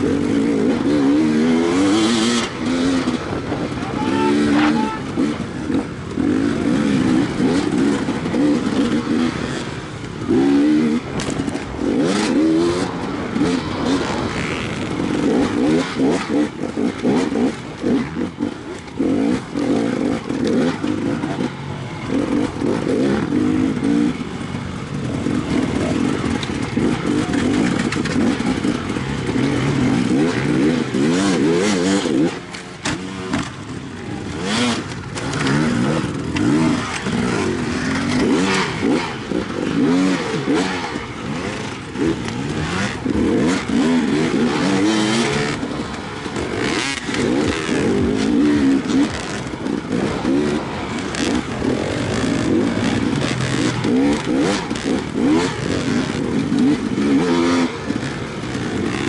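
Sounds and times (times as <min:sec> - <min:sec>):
dirt bike engine revving: 0:00.0 - 0:59.0
knocks and clatter: 0:25.3 - 0:33.8.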